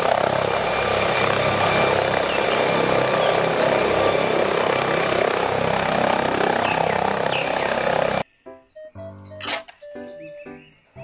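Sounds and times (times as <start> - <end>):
helicopter rotor noise: 0.0 - 8.2.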